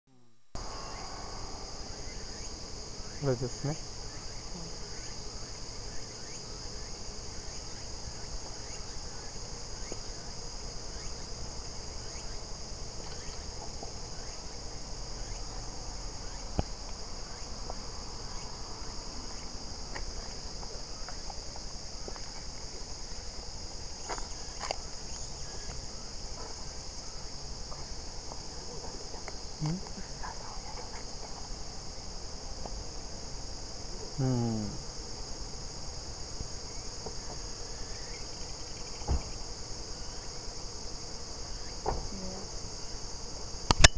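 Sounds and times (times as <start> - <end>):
insects chorus: 0.6 - 43.9
sharp click: 43.7 - 43.9.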